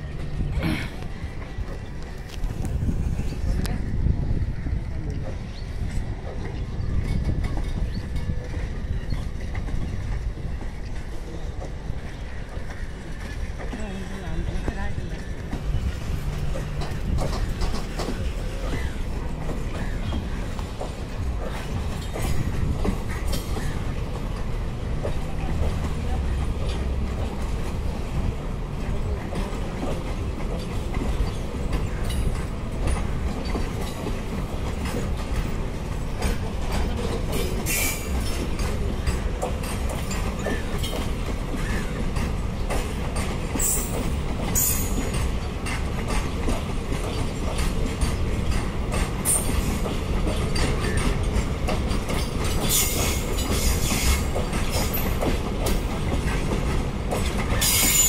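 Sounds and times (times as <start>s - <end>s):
freight train wheels rumbling on rails: 0.0s - 58.0s
high-pitched wheel squeals: 57.6s - 58.0s.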